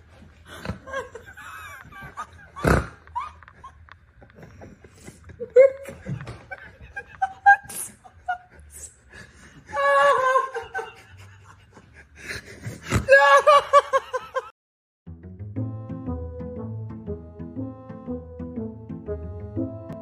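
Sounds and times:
high-pitched laughter: 0.5 - 3.9, 5.3 - 9.0, 9.7 - 14.5.

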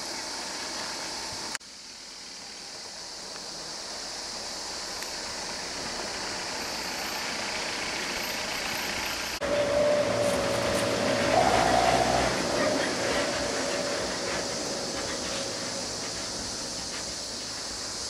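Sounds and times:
road noise: 0.0 - 18.0
steady hiss: 0.0 - 18.0
vehicle engine: 0.2 - 18.0.

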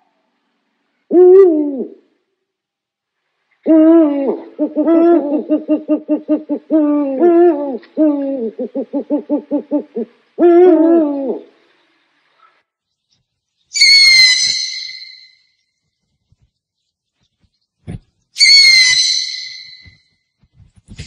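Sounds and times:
owl hooting: 1.1 - 2.0, 3.6 - 11.6, 13.7 - 15.5, 18.4 - 20.1.

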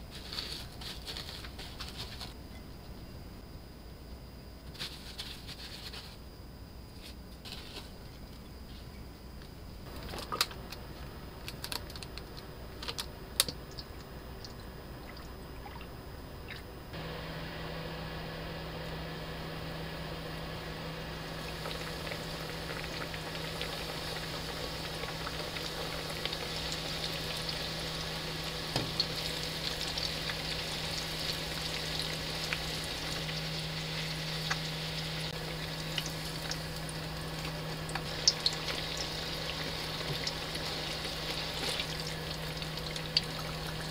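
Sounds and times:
soft rustling of breadcrumbs: 0.0 - 2.4, 4.7 - 6.2, 6.9 - 8.9
low hum of electric cooktop: 0.0 - 43.9
oil sizzling in a frying pan: 17.0 - 43.9.

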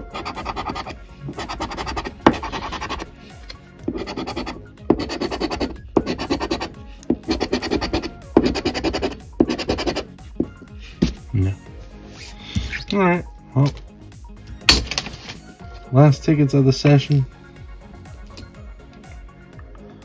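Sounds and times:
coin scratching a lottery ticket: 0.0 - 3.1, 3.9 - 6.7, 7.3 - 10.1.

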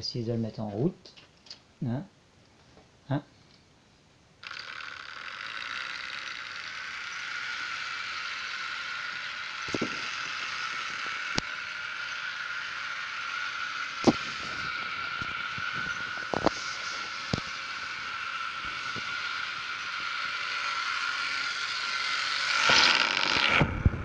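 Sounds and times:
model train motor whirring: 4.4 - 24.0
sharp clicks: 9.6 - 11.5.

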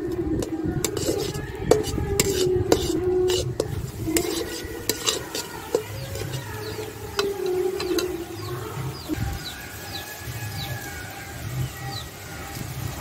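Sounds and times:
spatula scraping metal pan: 0.0 - 8.5
eggs sizzling: 0.0 - 13.0.

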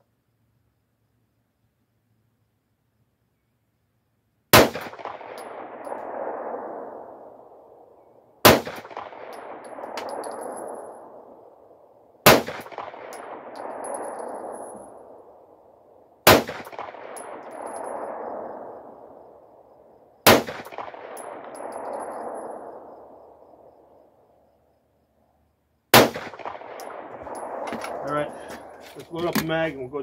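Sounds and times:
pistol shots with echo: 4.5 - 19.6, 20.2 - 23.7, 25.9 - 29.6.

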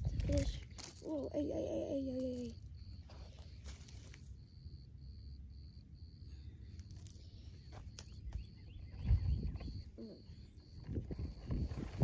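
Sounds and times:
wind rumbling on microphone: 0.0 - 0.8, 8.7 - 12.0
faint high-pitched chirp: 0.0 - 12.0.

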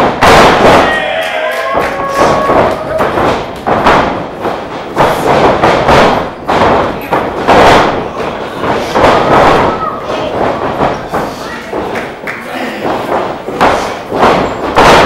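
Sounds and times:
bodies thudding on wrestling canvas: 1.8 - 11.3, 12.9 - 15.0.

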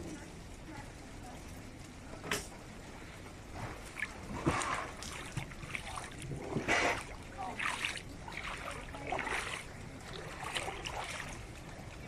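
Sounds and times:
wading through shallow water: 3.5 - 12.0.

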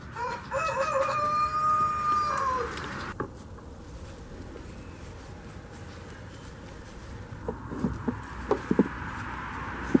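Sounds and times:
rooster crowing: 0.0 - 2.9.

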